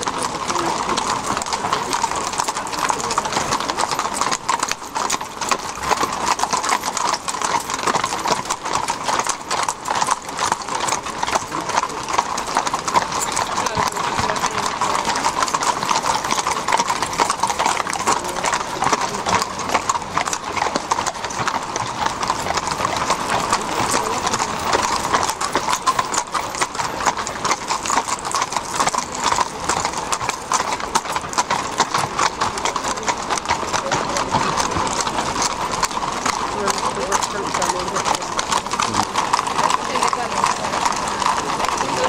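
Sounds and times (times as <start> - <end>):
horse hooves on hard surface: 0.0 - 42.0.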